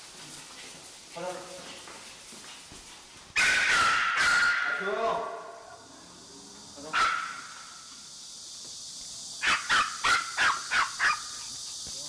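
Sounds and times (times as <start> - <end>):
small dog yapping: 3.4 - 4.8, 6.9 - 7.6, 9.4 - 11.4.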